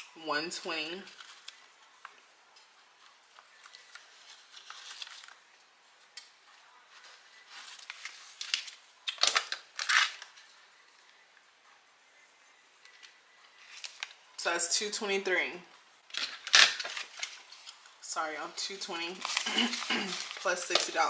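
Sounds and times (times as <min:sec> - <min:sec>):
paper bills rustling: 0:03.0 - 0:05.5, 0:06.9 - 0:08.8, 0:16.1 - 0:17.8, 0:19.1 - 0:21.0.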